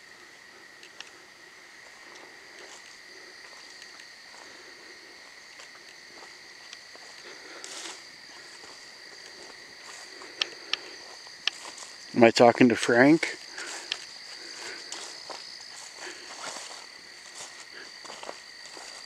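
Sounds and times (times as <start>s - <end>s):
night insects trilling: 0.0s - 19.0s
faint clicks: 0.8s - 1.2s, 10.3s - 11.6s.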